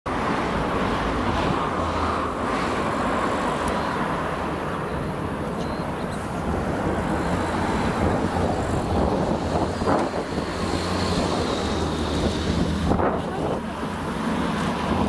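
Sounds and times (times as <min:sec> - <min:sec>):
radial engine and propeller: 0:03.4 - 0:15.0.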